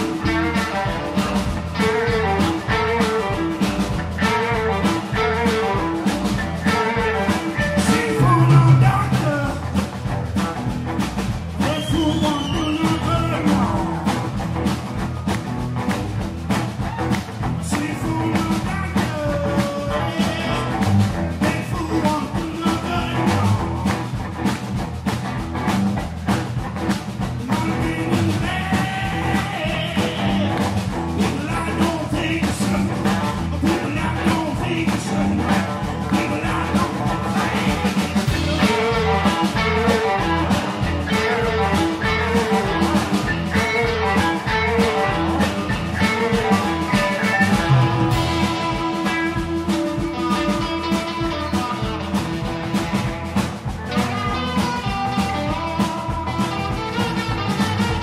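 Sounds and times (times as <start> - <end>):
bass guitar: 0.0 - 58.0
drum beat: 0.0 - 58.0
electric guitars: 0.0 - 58.0
man singing: 6.7 - 9.8, 11.6 - 14.2, 17.5 - 23.8, 27.4 - 52.4.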